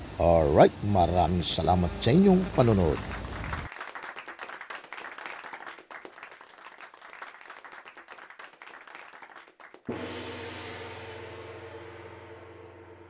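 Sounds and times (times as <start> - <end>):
many hands clapping: 2.2 - 10.0.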